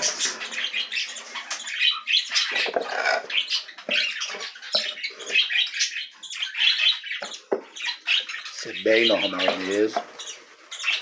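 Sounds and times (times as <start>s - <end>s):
birds chirping: 0.0s - 11.0s
wood shavings rustling and scratching: 8.5s - 11.0s.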